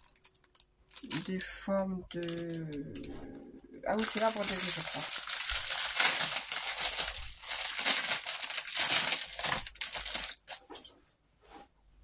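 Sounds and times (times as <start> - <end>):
plastic bag crinkling: 0.0 - 1.6, 2.2 - 3.2, 3.9 - 10.9.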